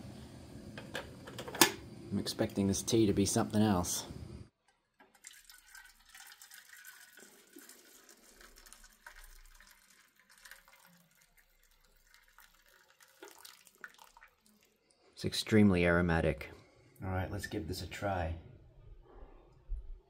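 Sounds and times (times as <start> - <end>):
tea trickling into metal pan: 5.0 - 15.1.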